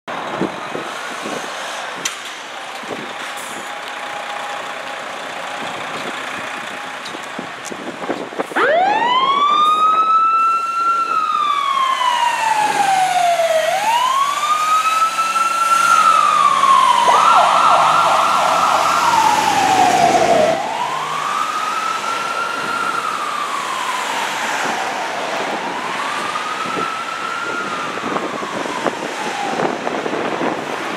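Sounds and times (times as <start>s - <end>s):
diesel engine: 0.1s - 9.0s, 10.5s - 30.9s
street noise: 0.1s - 30.9s
fire engine siren wailing: 8.4s - 30.9s.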